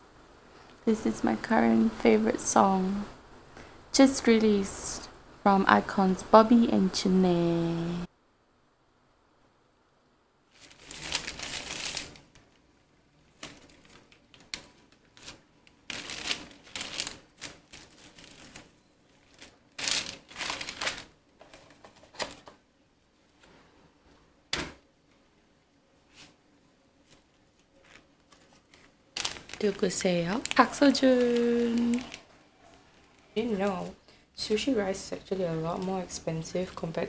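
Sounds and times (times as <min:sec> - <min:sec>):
seaweed rustling on bamboo mat: 0:10.5 - 0:22.2, 0:27.0 - 0:37.0.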